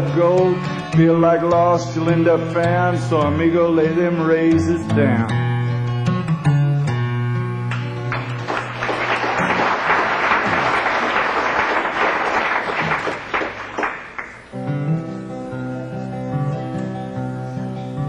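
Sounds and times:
acoustic guitar: 0.0 - 18.0
audience applauding: 8.1 - 14.6.

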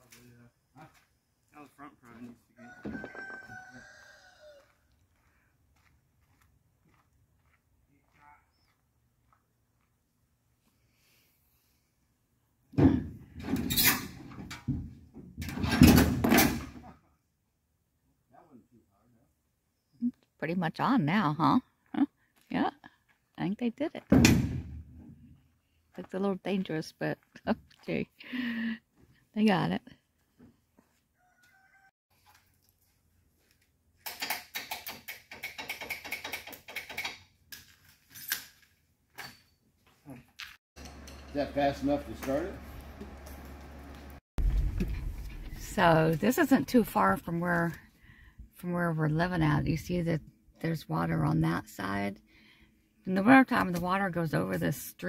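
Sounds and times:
metal clanking and scraping: 13.3 - 14.8.

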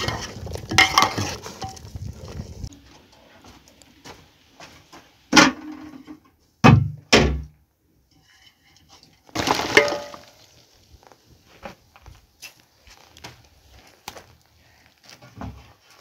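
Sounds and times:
metal pot and lid clanking: 0.0 - 1.9
water splashing into basket: 9.3 - 10.7.

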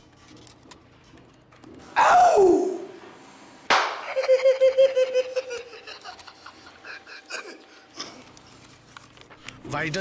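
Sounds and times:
man laughing heartily: 4.0 - 8.2.

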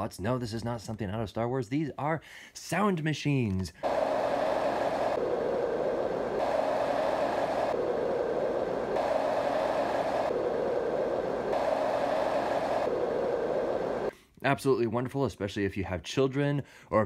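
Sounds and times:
white noise machine rushing: 3.8 - 14.1.

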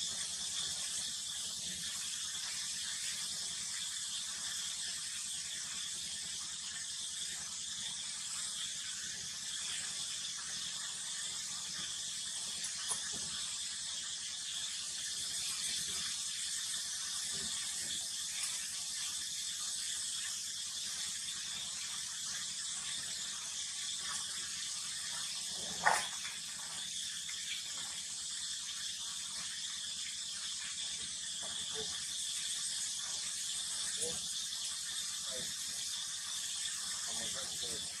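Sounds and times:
high-pitched outdoor hiss: 37.1 - 37.9.

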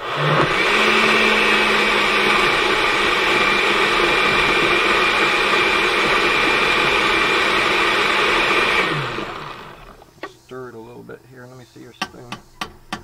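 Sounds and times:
blender running: 0.0 - 10.1.

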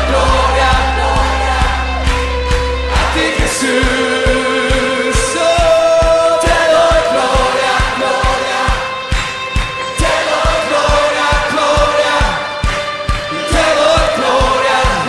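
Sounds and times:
low bass drone: 0.0 - 7.5
steady drum beat: 0.0 - 15.0
voices singing long notes: 0.0 - 15.0.

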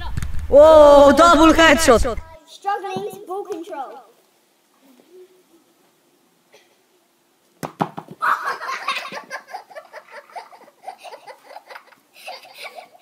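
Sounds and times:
boys laughing: 8.2 - 13.0.

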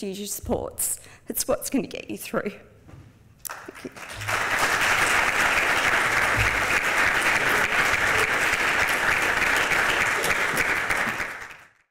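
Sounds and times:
audience applauding: 3.5 - 11.9.

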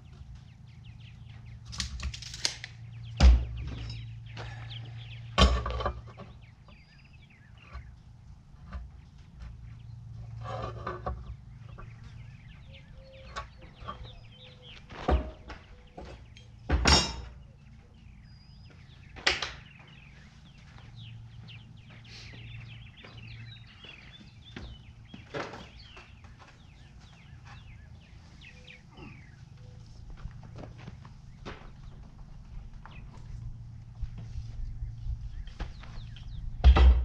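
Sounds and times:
birds chirping: 0.0 - 37.0
tools knocking and clattering: 3.2 - 4.2, 5.4 - 6.8, 15.0 - 17.4.

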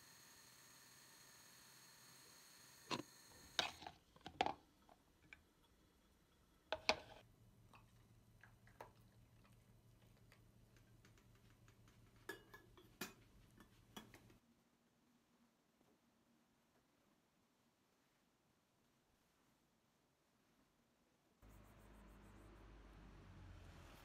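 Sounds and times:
dishes and utensils clinking: 12.2 - 14.3.

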